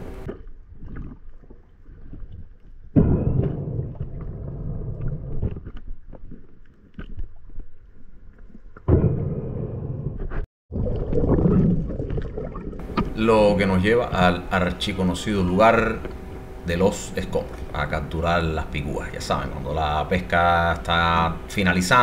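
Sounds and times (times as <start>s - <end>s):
low rumbling underwater noise: 0.0s - 22.0s.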